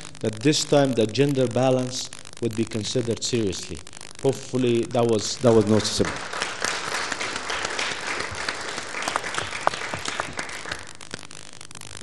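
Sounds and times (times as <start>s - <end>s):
audience applauding: 5.5s - 11.2s.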